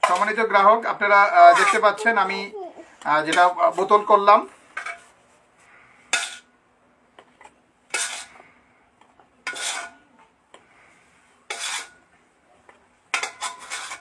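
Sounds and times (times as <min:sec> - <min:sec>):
metal spoon clinking and scraping: 0:06.1 - 0:06.5, 0:07.9 - 0:08.4, 0:09.5 - 0:10.0, 0:11.5 - 0:12.0, 0:13.1 - 0:14.0.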